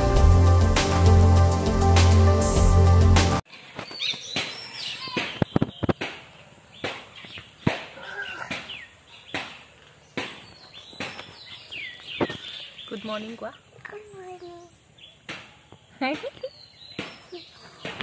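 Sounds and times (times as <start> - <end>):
small birds chirping: 3.6 - 18.0.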